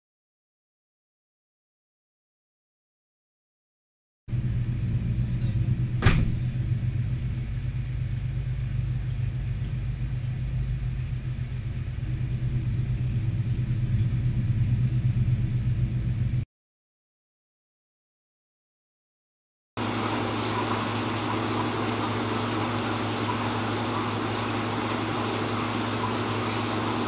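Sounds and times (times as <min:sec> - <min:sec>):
ship machinery hum: 0:04.3 - 0:16.4, 0:19.8 - 0:27.0
sharp knock: 0:06.0 - 0:06.4.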